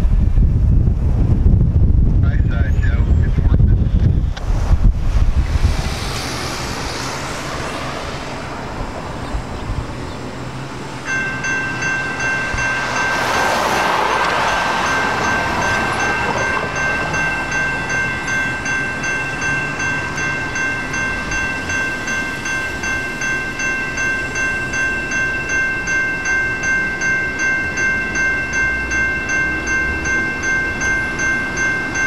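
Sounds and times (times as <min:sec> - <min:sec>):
broad rush of noise: 0:00.0 - 0:32.0
railroad crossing bell ringing: 0:10.7 - 0:32.0.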